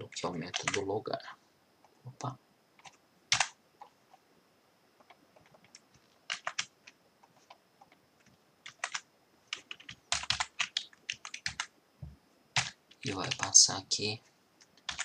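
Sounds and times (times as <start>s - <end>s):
computer keyboard typing: 0.0s - 0.9s, 2.2s - 3.9s, 5.0s - 11.7s, 12.6s - 13.6s, 14.6s - 15.0s.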